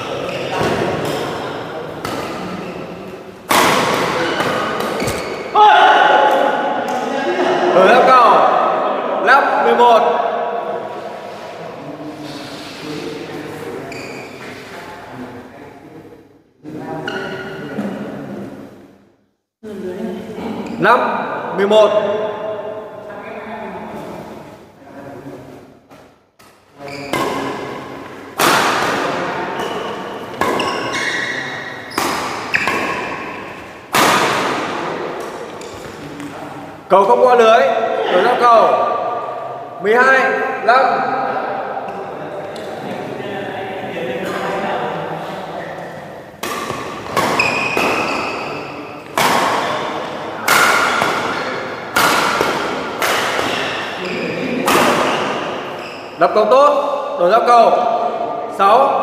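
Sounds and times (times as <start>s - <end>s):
racket hitting shuttlecock: 0.1s - 5.6s, 25.9s - 36.3s, 46.4s - 56.1s.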